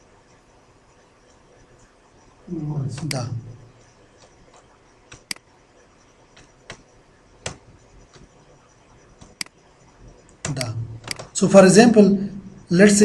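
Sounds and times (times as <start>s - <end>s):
computer mouse clicking: 3.0s - 11.4s.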